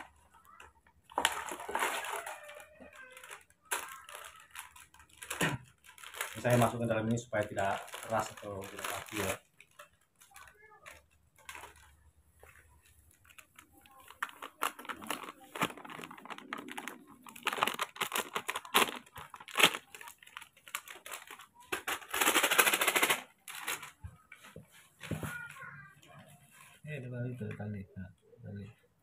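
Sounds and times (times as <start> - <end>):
foil pouch crinkling: 0.0 - 24.0
powder pouring into container: 7.6 - 9.4.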